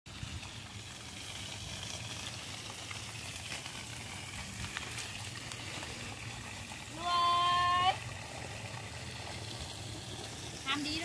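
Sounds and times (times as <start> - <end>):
water running from garden hose: 0.1 - 11.0.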